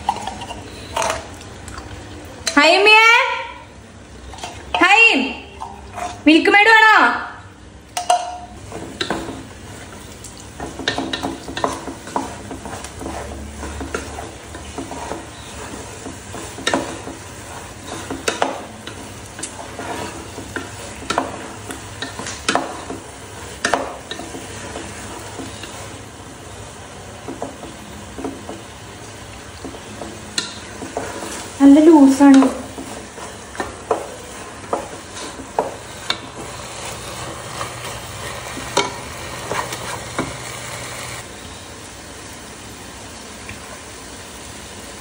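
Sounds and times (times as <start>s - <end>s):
low sizzle: 0.0s - 45.0s
utensil scraping a pan: 10.6s - 26.0s, 29.6s - 41.2s.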